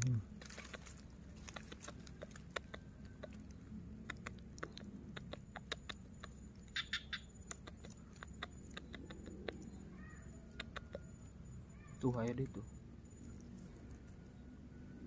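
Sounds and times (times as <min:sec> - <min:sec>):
faint sharp clicks and ticks: 0:00.0 - 0:06.8, 0:07.4 - 0:09.8
high chirp-like clicks: 0:00.0 - 0:14.2.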